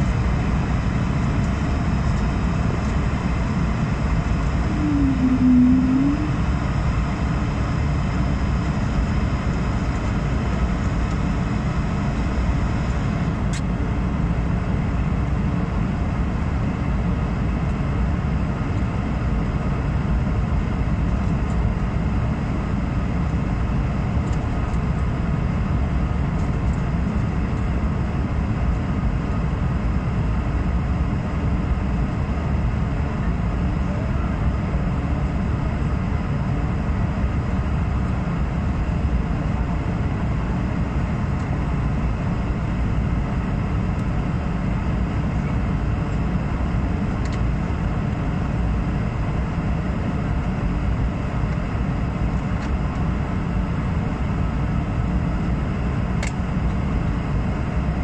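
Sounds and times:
jet airliner cabin rumble: 0.0s - 58.0s.

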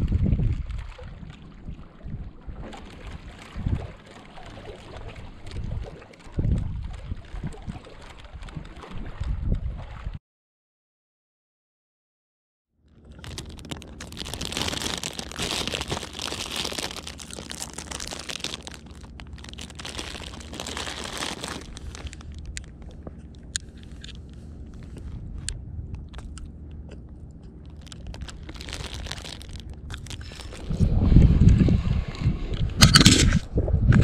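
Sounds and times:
plastic bag crinkling: 12.9s - 25.0s, 26.0s - 26.5s, 27.4s - 30.8s.

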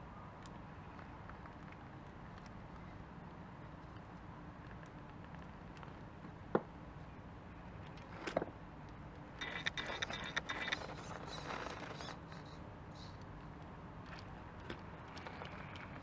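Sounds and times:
hard parts clicking on rock: 9.4s - 12.1s.

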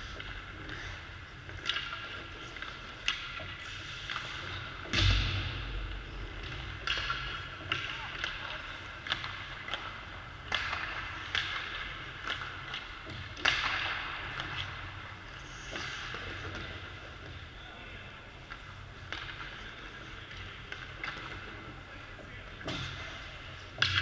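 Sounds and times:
hockey sticks hitting pucks: 1.6s - 5.3s, 6.4s - 15.0s, 19.1s - 21.5s, 23.8s - 24.0s
heavy thud: 4.9s - 7.6s
pucks hitting boards and glass: 6.4s - 14.7s.

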